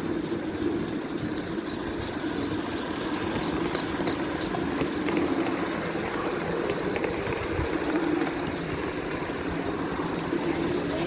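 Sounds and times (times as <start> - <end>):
locomotive running noise: 0.0 - 11.0
steam hissing: 0.0 - 11.0.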